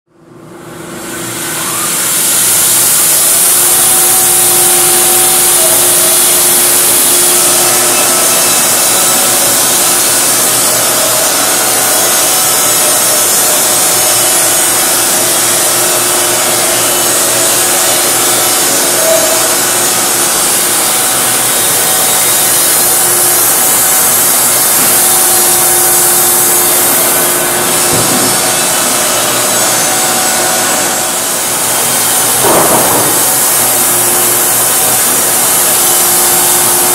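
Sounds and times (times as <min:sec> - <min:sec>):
band sawmill cutting log: 0:00.7 - 0:36.9.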